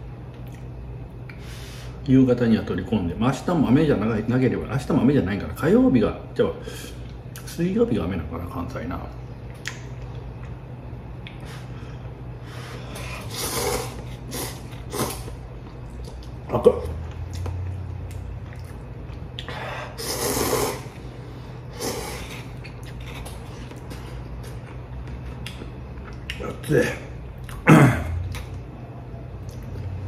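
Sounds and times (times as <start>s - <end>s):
low steady hum: 0.0s - 30.0s.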